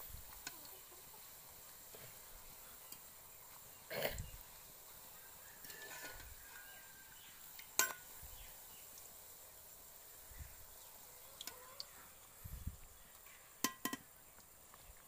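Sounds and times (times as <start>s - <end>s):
oil sizzling: 0.0s - 15.0s
metal spatula clinking on pan: 7.8s - 8.0s.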